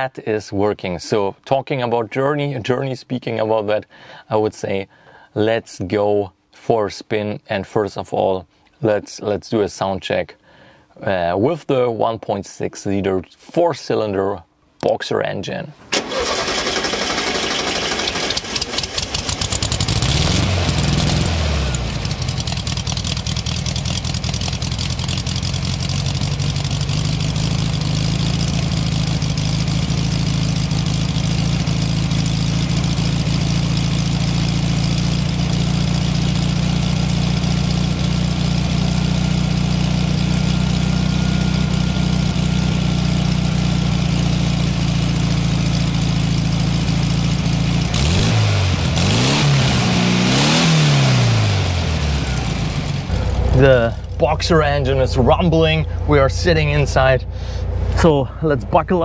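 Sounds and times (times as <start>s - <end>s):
starter motor cranking: 15.9s - 29.8s
car engine revving and idling: 17.1s - 59.0s.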